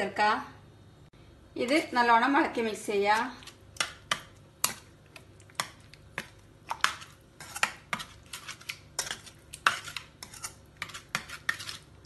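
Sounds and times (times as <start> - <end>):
metal spoon scraping a pan: 5.6 - 12.0.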